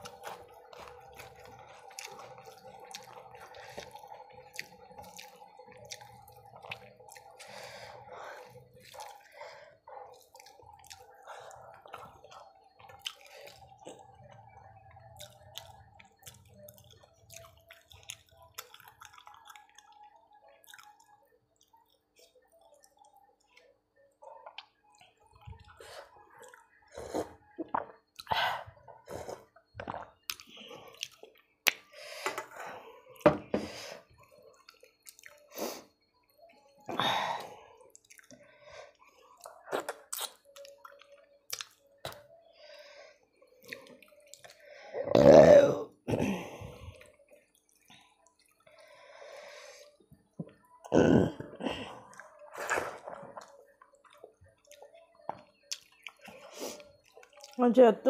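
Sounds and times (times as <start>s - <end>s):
chewing: 0.0s - 33.2s, 34.1s - 44.9s, 46.3s - 57.6s
lip smacks: 29.8s - 31.9s, 39.4s - 42.3s.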